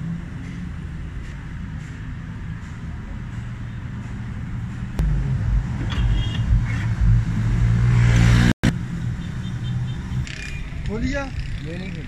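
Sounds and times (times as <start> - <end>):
diesel engine revving: 4.7 - 8.6.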